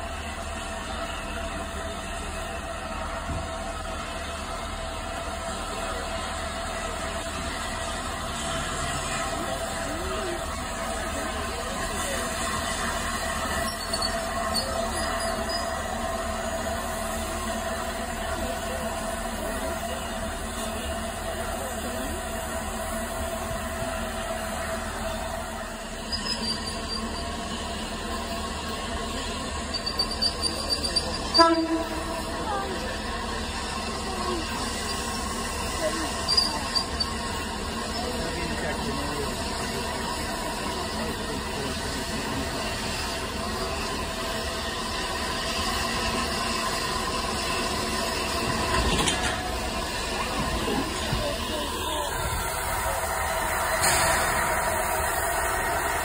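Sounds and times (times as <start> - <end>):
train wheels rumbling on rails: 0.0 - 56.0
faint high squeals: 26.0 - 27.4, 29.6 - 32.0
train wheels clattering: 46.1 - 51.7.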